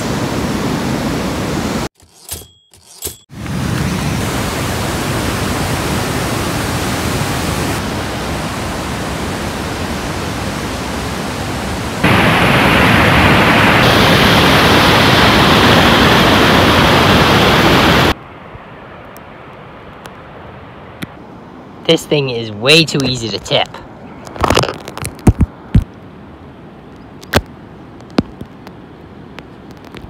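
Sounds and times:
water rushing over rocks: 3.4 - 18.2.

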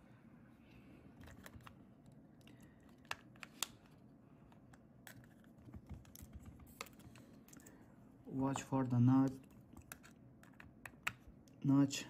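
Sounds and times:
small clicks and taps: 9.4 - 11.6.

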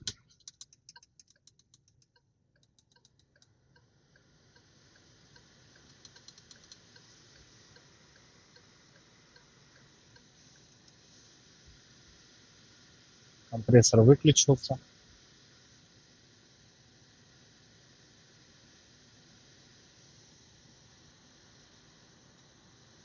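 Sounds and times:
ventilation fan air rush: 0.0 - 2.0, 2.6 - 23.0
faint regular ticking: 0.0 - 11.1.

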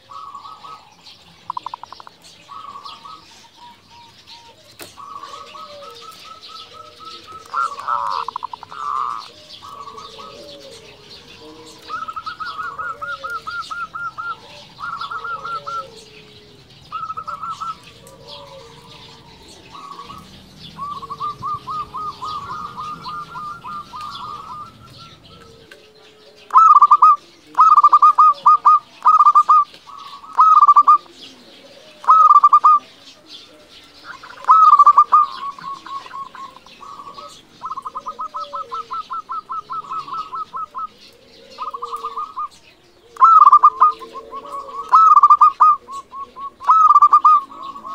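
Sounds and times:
dove cooing: 0.0 - 47.9.

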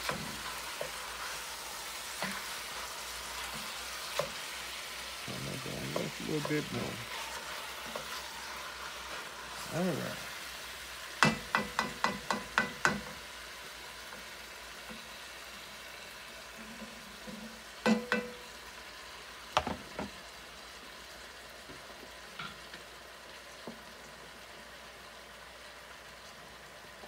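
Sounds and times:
meat sizzling in a pot: 0.0 - 27.0
spatula tapping a pot: 11.2 - 13.3, 17.3 - 18.6, 19.6 - 20.1.

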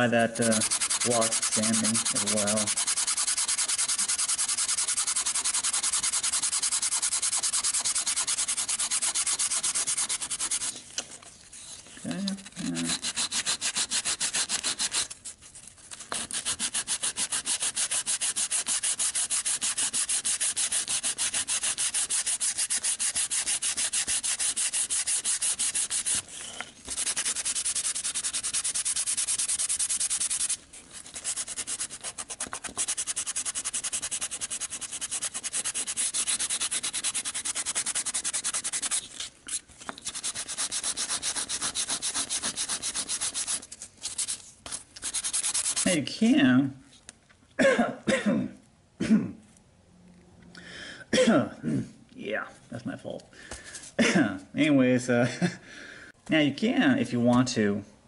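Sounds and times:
sandpaper scratching on plastic: 0.0 - 10.9, 11.5 - 46.0.

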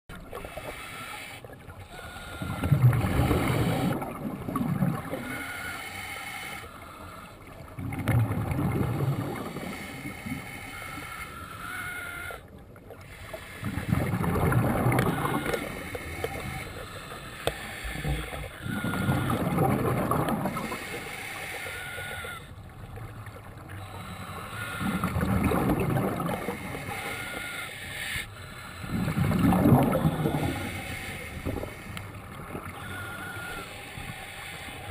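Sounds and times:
bubbling diver exhalations: 28.9 - 30.6.

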